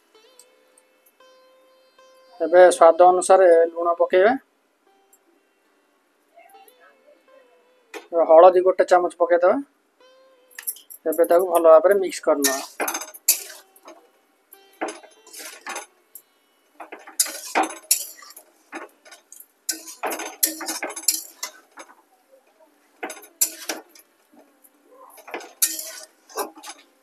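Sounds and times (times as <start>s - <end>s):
spatula scraping metal pan: 12.4s - 14.0s, 14.8s - 15.9s, 16.8s - 22.0s, 23.0s - 24.1s, 25.1s - 26.9s.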